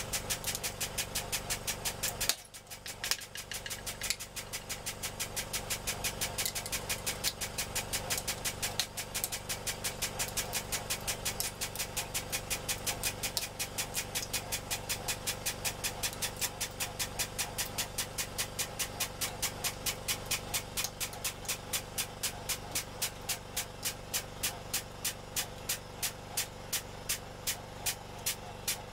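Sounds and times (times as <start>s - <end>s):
rapid even ticking: 0.2s - 9.4s.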